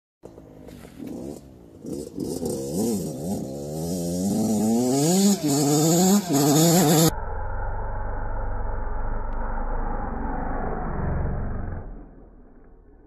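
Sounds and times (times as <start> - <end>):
dirt bike engine revving: 0.5 - 7.1.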